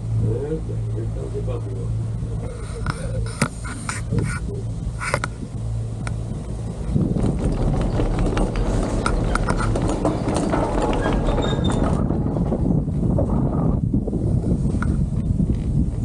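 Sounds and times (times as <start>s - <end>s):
rope rolling over pulleys clattering: 6.2s - 13.4s.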